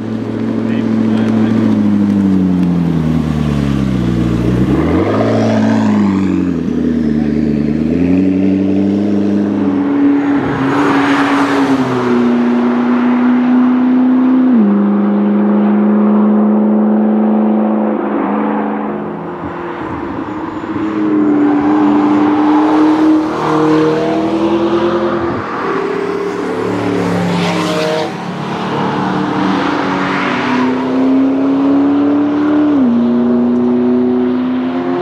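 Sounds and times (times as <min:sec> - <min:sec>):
sports car engines revving: 0:00.0 - 0:35.0
car passing close: 0:16.9 - 0:35.0.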